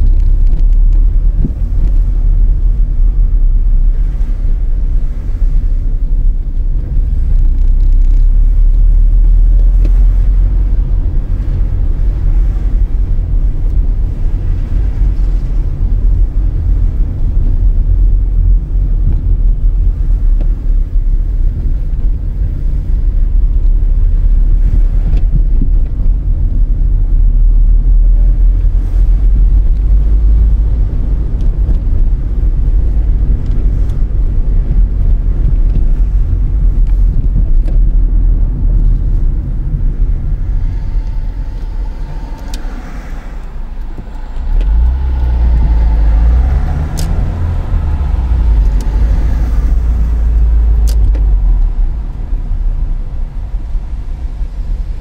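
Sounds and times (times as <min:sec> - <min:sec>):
car engine and tyres rumbling: 0:00.0 - 0:55.0.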